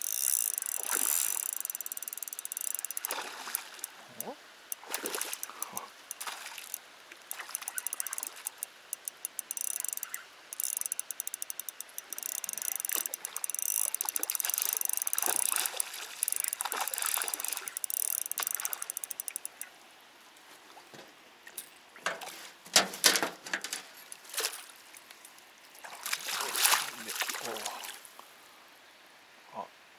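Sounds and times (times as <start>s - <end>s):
fishing reel clicking: 0.0s - 3.9s, 4.7s - 19.7s.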